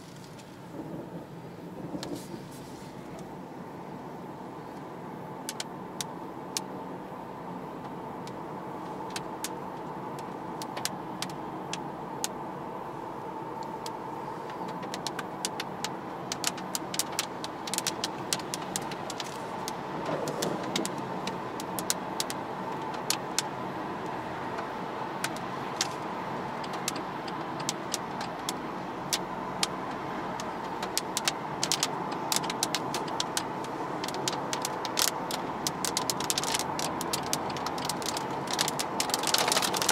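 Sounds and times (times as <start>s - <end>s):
car engine at speed: 0.0s - 39.9s
tyre and wind noise: 13.5s - 39.9s.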